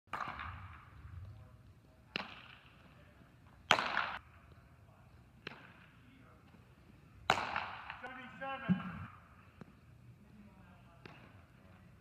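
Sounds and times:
bat hitting ball: 0:00.1 - 0:00.9, 0:03.7 - 0:04.2, 0:07.2 - 0:08.0.

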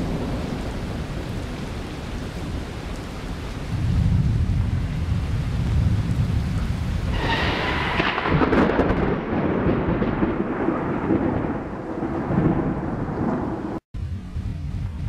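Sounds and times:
rain falling: 0:00.0 - 0:15.0
thunder rumbling: 0:00.0 - 0:15.0
loud rushing noise: 0:07.1 - 0:09.2.

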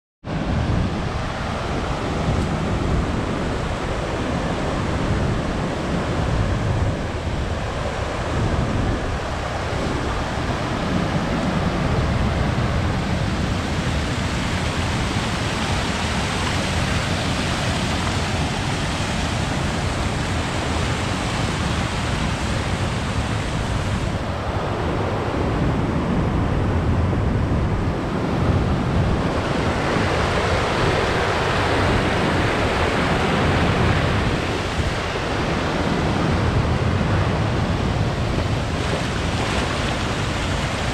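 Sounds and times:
wind buffeting microphone: 0:00.2 - 0:40.9
waterfall rushing: 0:12.4 - 0:24.2, 0:36.9 - 0:40.9.

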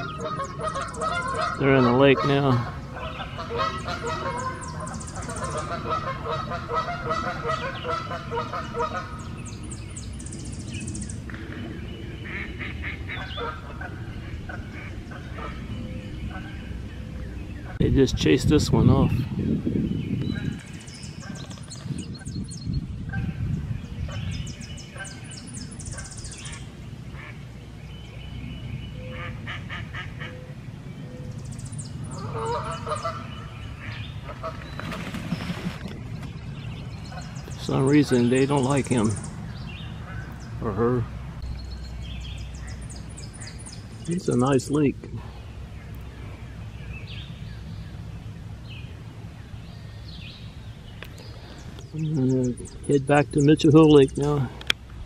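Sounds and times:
geese honking: 0:00.0 - 0:09.5, 0:12.2 - 0:16.9, 0:24.8 - 0:27.6, 0:29.0 - 0:30.6, 0:32.1 - 0:35.0, 0:37.0 - 0:39.2
small birds chirping: 0:00.0 - 0:55.0
steady low rumble: 0:00.0 - 0:55.0.

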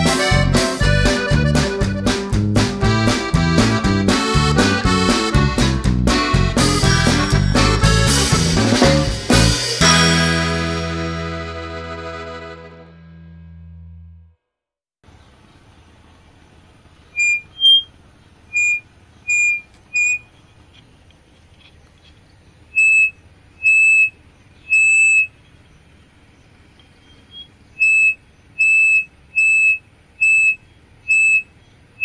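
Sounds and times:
loudspeaker feedback squealing: 0:17.1 - 0:17.9, 0:18.5 - 0:20.3, 0:22.7 - 0:25.4, 0:27.2 - 0:31.5.

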